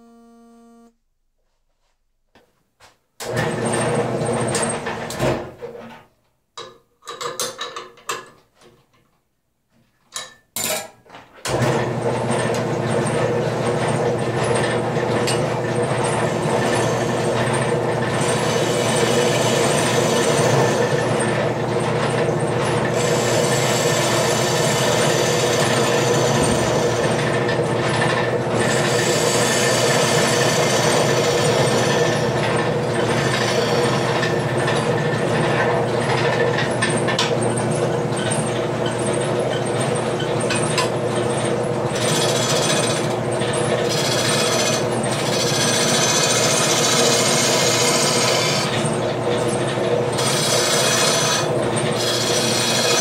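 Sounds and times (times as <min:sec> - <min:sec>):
wood lathe motor humming: 0:12.5 - 0:37.4, 0:40.4 - 0:53.0
gouge cutting wood: 0:22.9 - 0:27.3, 0:28.6 - 0:32.4, 0:33.0 - 0:34.3, 0:43.8 - 0:48.9, 0:50.2 - 0:53.0.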